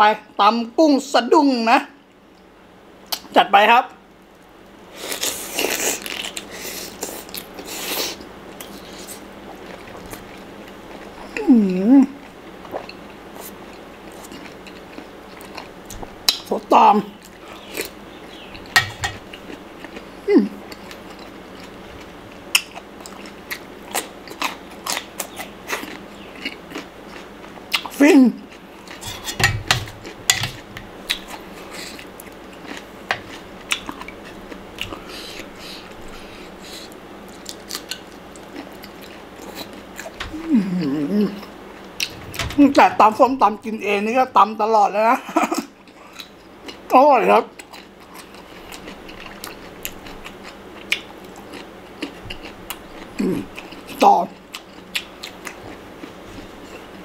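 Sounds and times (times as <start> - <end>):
wet crunchy chewing: 5.0 - 11.4, 17.2 - 40.2, 47.5 - 57.0.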